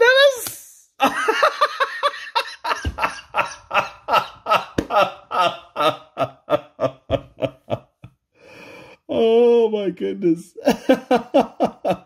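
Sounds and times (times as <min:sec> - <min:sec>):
man laughing: 0:01.0 - 0:08.2, 0:10.6 - 0:12.0.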